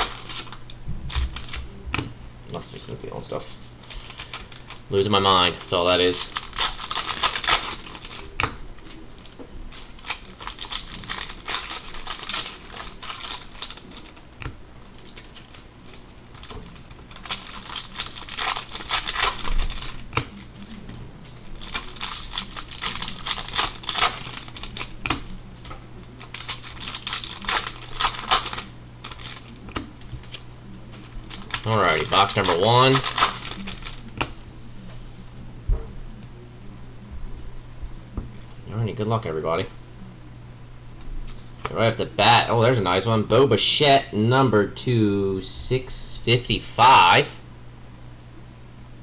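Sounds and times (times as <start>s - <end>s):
wrappers crinkling and rustling: 0.0s - 1.9s, 2.5s - 34.4s
steady low hum: 0.0s - 49.0s.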